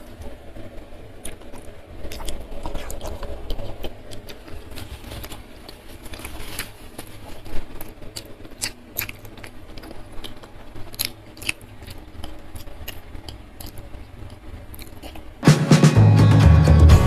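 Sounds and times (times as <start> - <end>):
low steady hum: 0.0 - 17.0
chewing and lip-smacking: 1.2 - 15.4.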